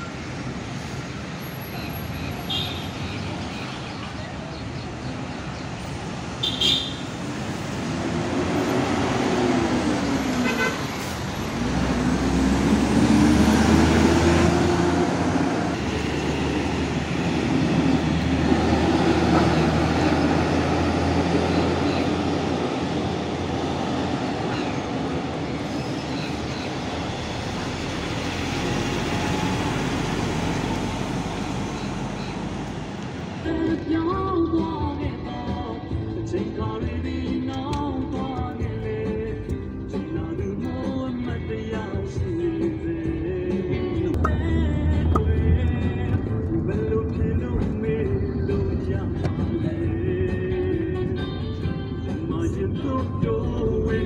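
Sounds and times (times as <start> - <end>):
vehicles driving past: 0.0 - 54.0
car horn toot: 6.4 - 7.1, 10.4 - 11.0.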